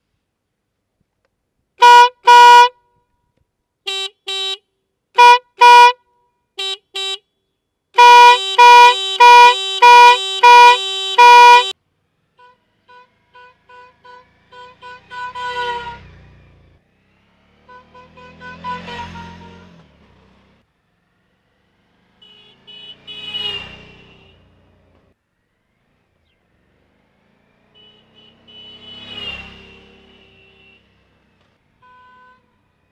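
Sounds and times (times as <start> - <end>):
air horn blasting: 1.8 - 2.8, 3.9 - 4.6, 5.2 - 7.2, 8.0 - 11.8, 12.4 - 16.1, 17.7 - 19.8, 22.3 - 24.5, 27.8 - 30.9
motorcycle engine: 8.0 - 31.8.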